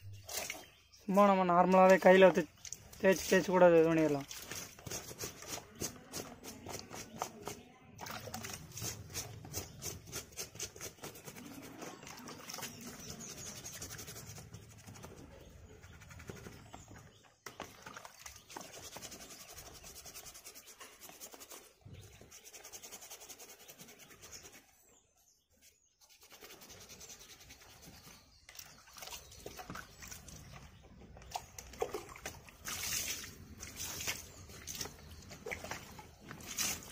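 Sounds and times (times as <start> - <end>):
hands scrubbing filter in water: 0.1 - 24.7, 26.0 - 36.9
water splashing: 1.7 - 6.0, 8.0 - 9.3, 28.5 - 36.9.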